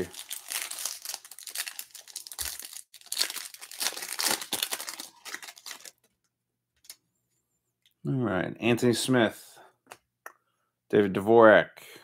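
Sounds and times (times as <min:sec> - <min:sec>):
plastic wrapper crinkling: 0:00.0 - 0:06.1.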